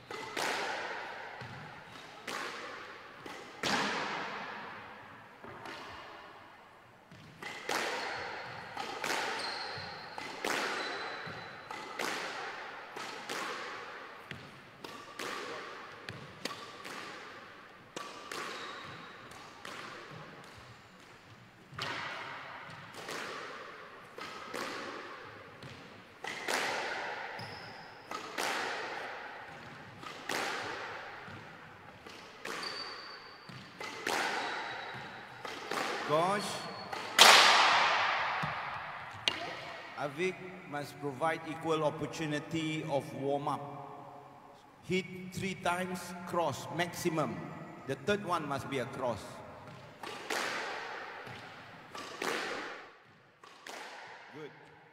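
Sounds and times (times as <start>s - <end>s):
squash ball cracking off walls: 2.2s - 4.7s, 28.1s - 31.5s, 33.5s - 39.6s, 50.0s - 54.3s.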